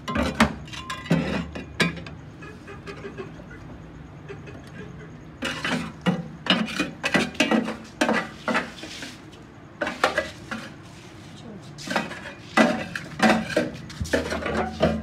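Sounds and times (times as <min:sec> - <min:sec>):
metal scraper scraping steel drum: 0:05.4 - 0:09.2, 0:11.8 - 0:15.0.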